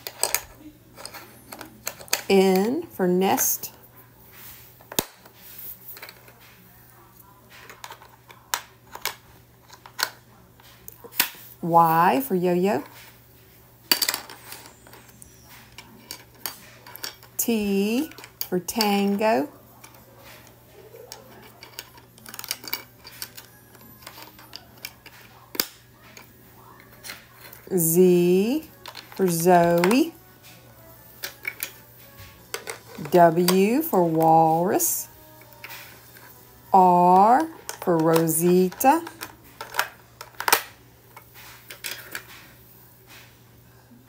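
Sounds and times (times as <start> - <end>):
plastic puzzle pieces clicking: 21.4 - 26.3, 37.4 - 40.7.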